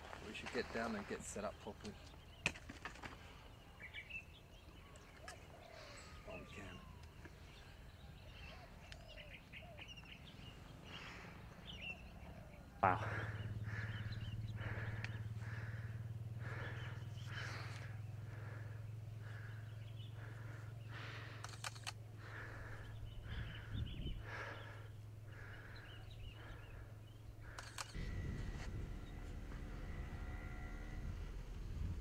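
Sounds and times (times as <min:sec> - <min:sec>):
steady low hum: 0:09.6 - 0:32.0
sharp clicks: 0:21.2 - 0:22.0, 0:27.5 - 0:28.1.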